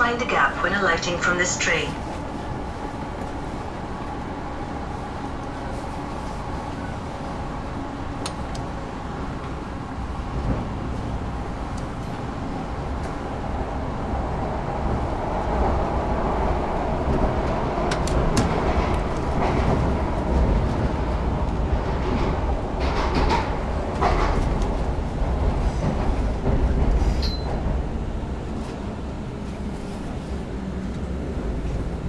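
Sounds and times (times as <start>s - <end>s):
faint train whine: 0.0s - 21.6s
train wheels rumbling on rail: 0.0s - 32.0s.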